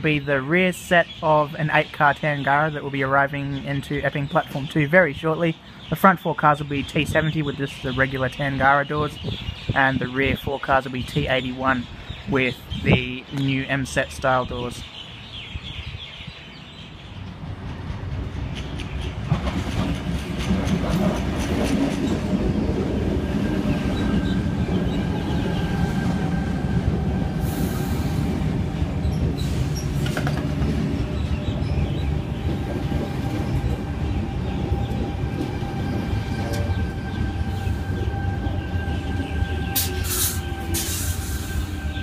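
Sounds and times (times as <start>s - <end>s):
high whine of train: 14.3s - 42.0s
electric train rumble and wheel clatter: 15.5s - 42.0s.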